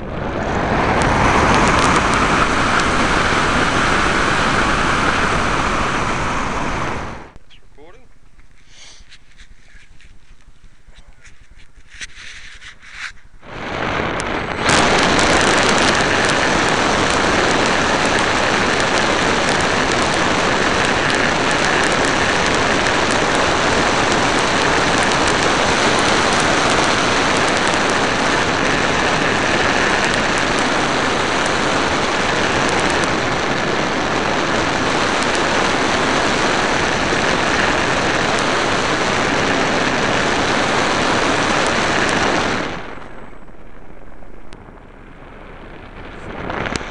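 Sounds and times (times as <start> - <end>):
wind rush: 0.0 - 7.4, 8.4 - 46.9
faint steady whine: 0.0 - 46.9
model airplane motor and propeller: 13.8 - 43.5.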